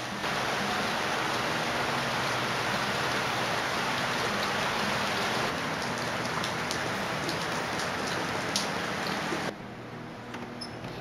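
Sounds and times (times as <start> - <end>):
rain falling: 0.0 - 9.5
raindrops ticking: 2.2 - 9.5.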